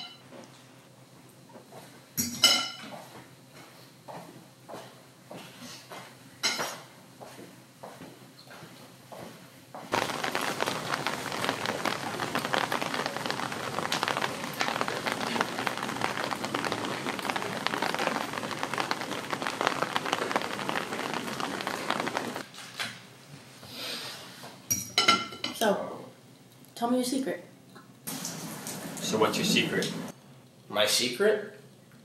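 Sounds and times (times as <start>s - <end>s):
dense crackling hiss: 9.9s - 22.5s, 28.1s - 30.1s.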